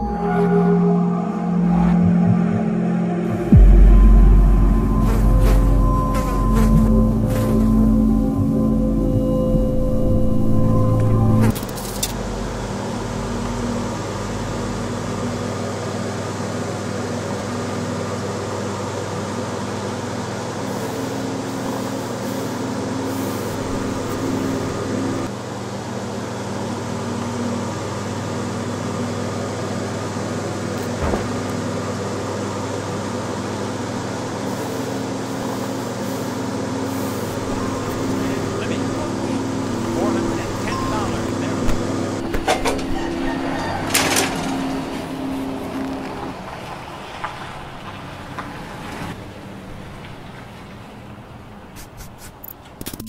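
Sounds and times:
steady low hum: 0.0s - 46.8s
hiss: 20.6s - 25.0s, 34.4s - 38.5s.

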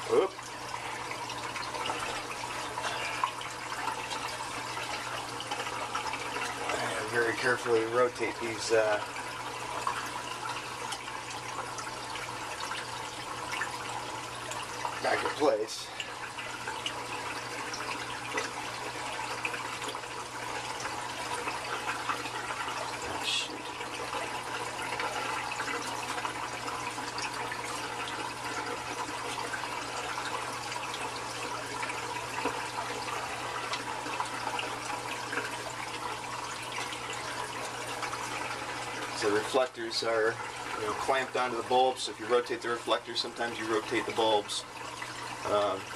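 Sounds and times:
low steady hum: 0.0s - 45.9s
water rushing and splashing: 20.4s - 45.9s.

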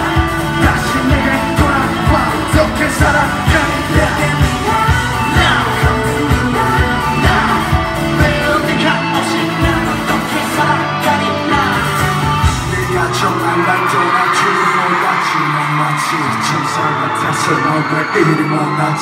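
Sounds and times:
group vocals singing: 0.0s - 14.6s
steady drum beat: 0.0s - 14.8s.

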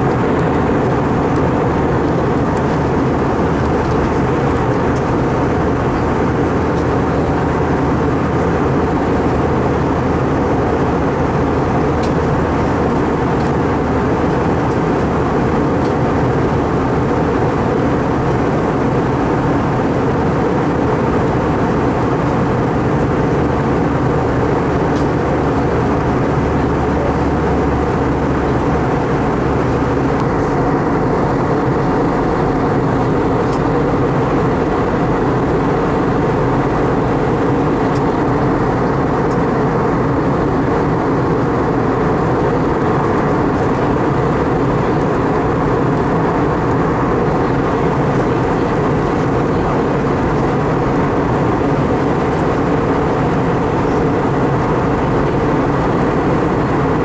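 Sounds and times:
jet engine rumble and airflow: 0.0s - 57.0s.

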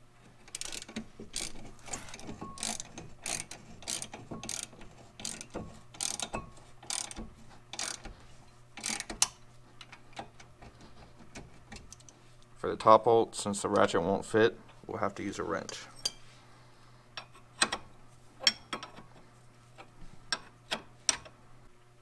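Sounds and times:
ratchet clicking: 0.5s - 8.1s, 8.8s - 9.4s.

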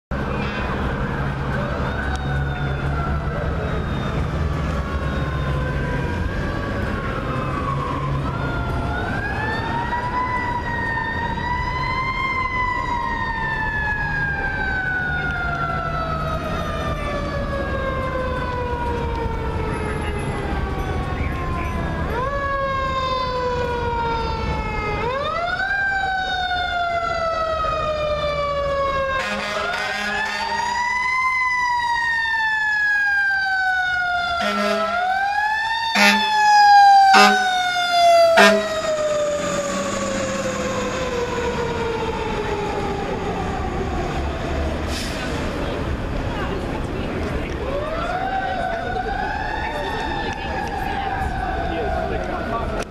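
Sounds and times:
air horns: 29.2s - 30.8s, 34.4s - 35.1s, 36.0s - 36.4s, 37.1s - 37.6s, 38.3s - 38.9s, 39.5s - 40.2s.

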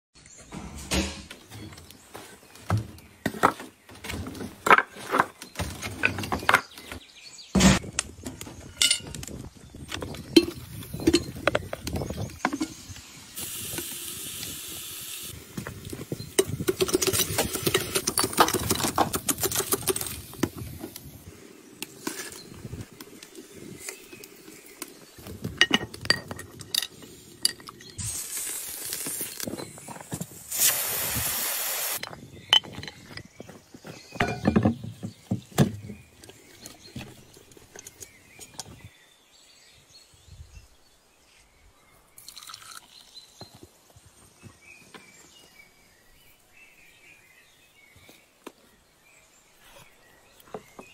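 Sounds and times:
pressure cooker hissing: 13.4s - 15.3s, 30.5s - 32.0s.

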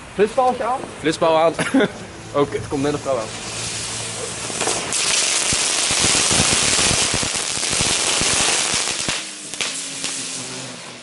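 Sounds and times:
strobe firework hissing and crackling: 1.9s - 11.0s.

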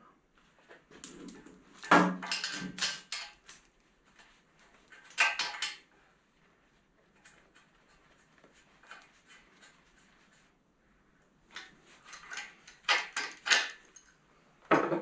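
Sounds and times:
hose fittings clinking on steel: 1.0s - 3.7s, 4.9s - 5.9s, 11.5s - 14.2s.

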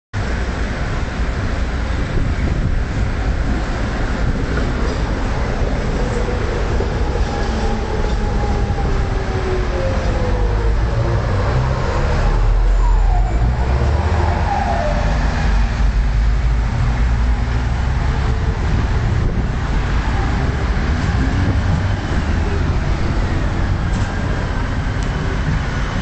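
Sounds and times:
city street traffic rumble: 0.2s - 26.0s
tram passing on tracks: 0.2s - 26.0s.

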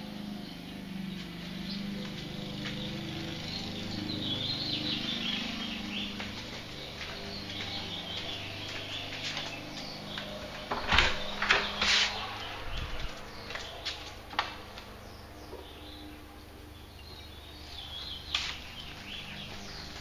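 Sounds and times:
door knocks and clatters: 10.7s - 11.8s.

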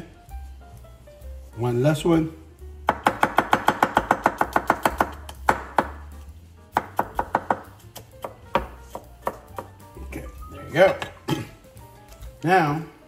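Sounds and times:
knife chopping on plastic board: 2.8s - 9.8s.

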